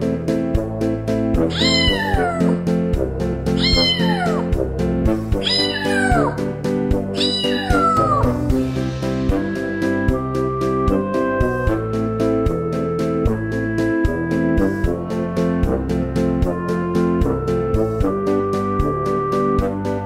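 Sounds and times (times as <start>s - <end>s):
cat meowing: 1.5s - 2.6s, 3.6s - 4.6s, 5.4s - 6.5s, 7.2s - 8.4s
music with steady beat: 8.2s - 20.0s.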